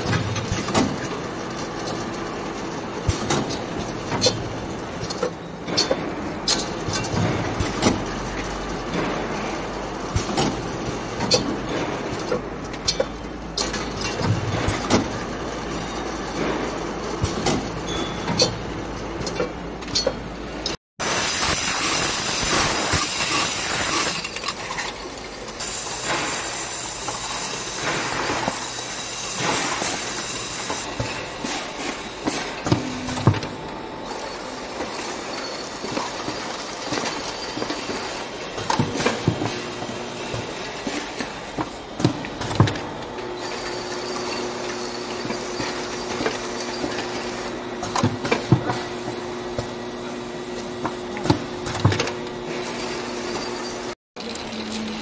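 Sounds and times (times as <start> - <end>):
jar filling machinery running: 21.0 - 55.0.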